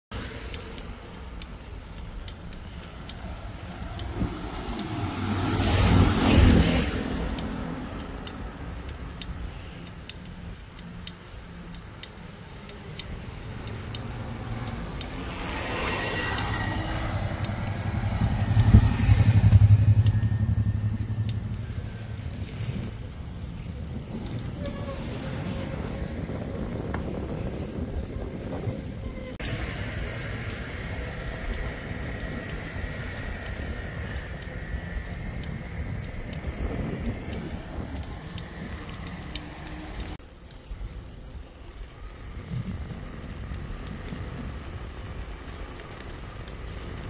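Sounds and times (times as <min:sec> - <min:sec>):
motor vehicles passing: 0:00.1 - 0:47.0
steady low engine hum: 0:16.2 - 0:24.2.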